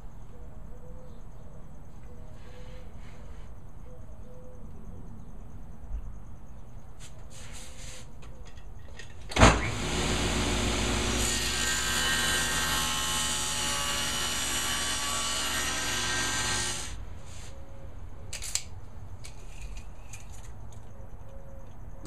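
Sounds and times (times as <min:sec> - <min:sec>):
table saw cutting wood: 0:09.6 - 0:17.0.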